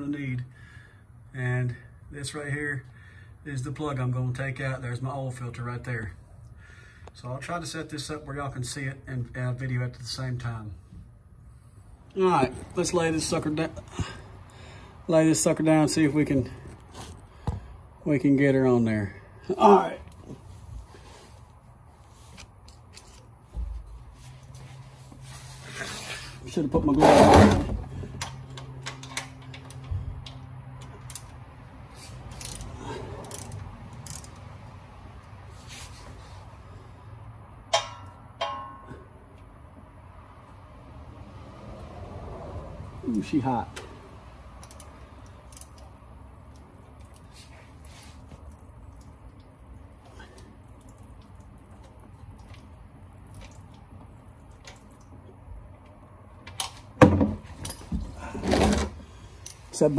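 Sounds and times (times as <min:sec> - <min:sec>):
ratchet clicks: 0:32.3 - 0:34.5, 0:44.6 - 0:45.9.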